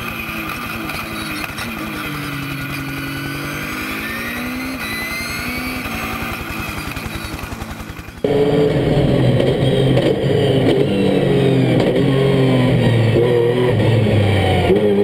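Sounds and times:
race car engine revving: 0.0 - 15.0.

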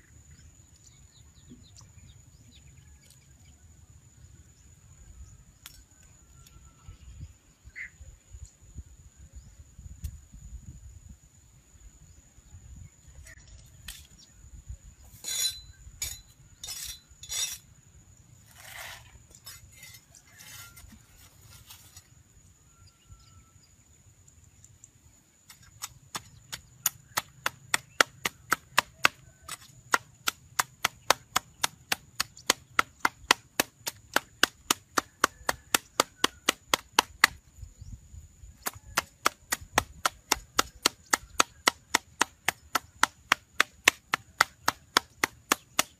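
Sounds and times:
knocks and scrapes: 15.0 - 17.7, 18.4 - 22.2.

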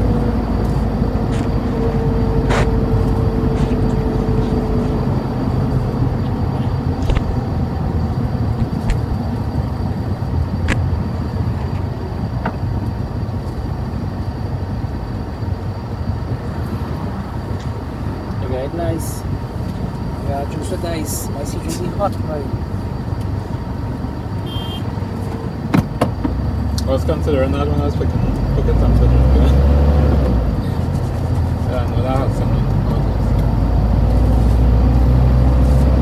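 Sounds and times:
steady low rumble: 0.0 - 24.5.

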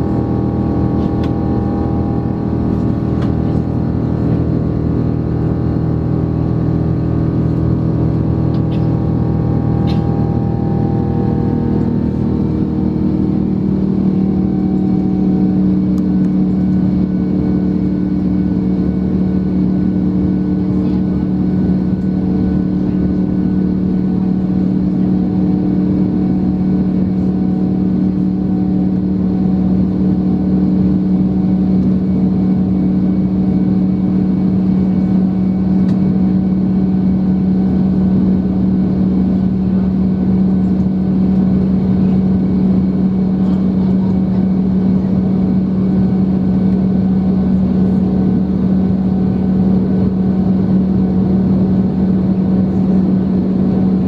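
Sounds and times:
high engine whines: 0.0 - 54.0
jet engines droning: 0.0 - 54.0.

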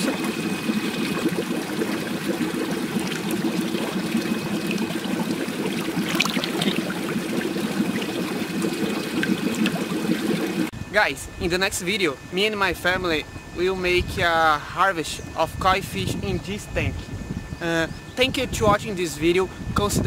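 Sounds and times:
water running and splashing: 0.0 - 10.7.

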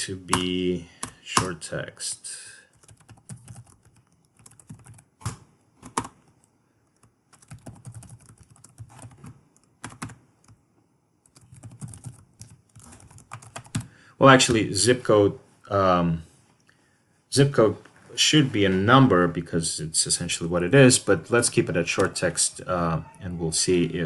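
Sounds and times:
computer keyboard typing: 2.7 - 10.6, 11.2 - 13.9.

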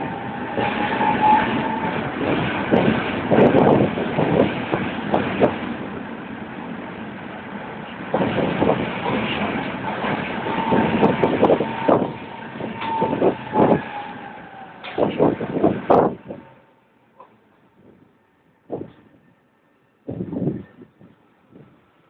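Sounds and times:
tram wheels clattering on rails: 0.0 - 17.4
steady tram whine: 0.0 - 22.0.

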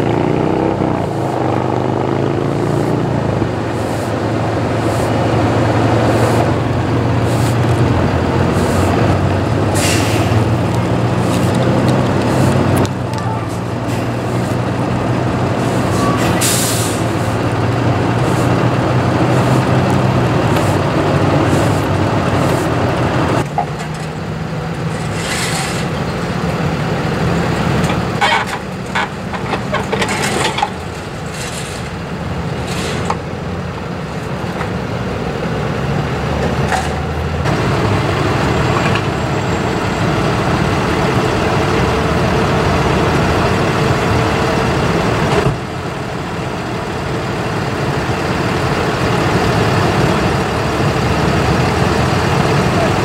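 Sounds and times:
truck engines running: 0.0 - 53.0
metallic clanks and knocks: 27.8 - 31.0.

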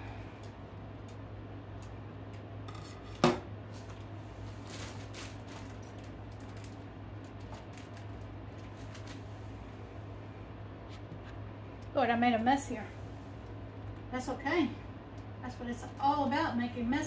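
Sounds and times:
plastic bag rustling: 3.6 - 9.8.

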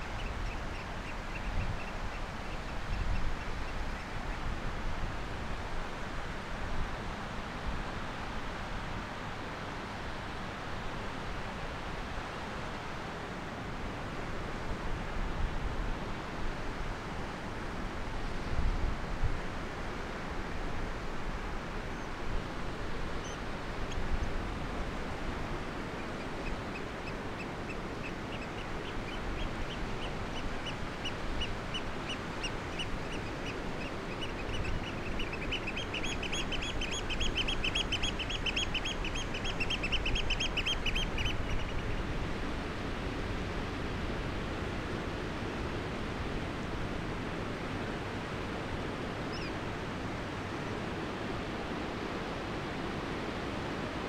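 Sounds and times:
wind: 0.0 - 54.0
bird high piping calls: 26.1 - 42.0.

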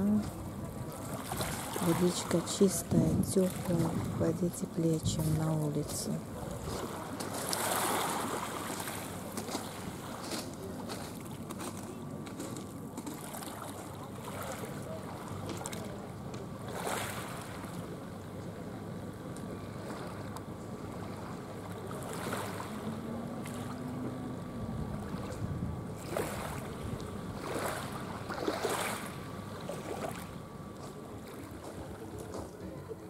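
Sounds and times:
waves washing on pebbles: 1.0 - 4.2, 6.0 - 11.8, 26.0 - 26.8, 27.4 - 29.2.

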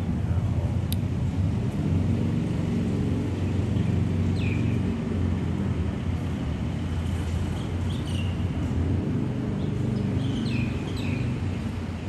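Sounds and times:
distant city rumble: 0.0 - 12.0
bird chirp: 3.8 - 4.8, 7.5 - 8.4, 9.6 - 11.4.

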